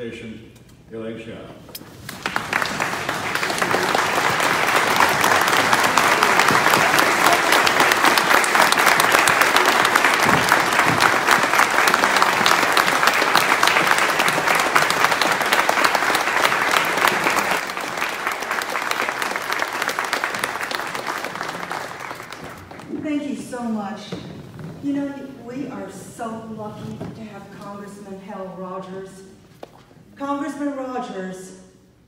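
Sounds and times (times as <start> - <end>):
large audience applauding: 1.9 - 23.0.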